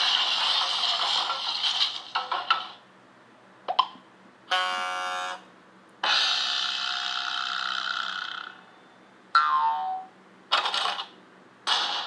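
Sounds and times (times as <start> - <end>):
flat buzzer tone: 4.5 - 5.5.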